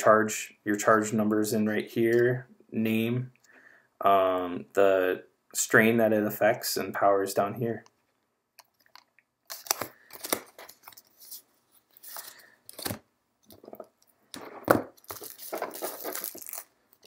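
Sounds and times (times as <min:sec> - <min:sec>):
cards rustling and scraping: 0:08.6 - 0:17.0.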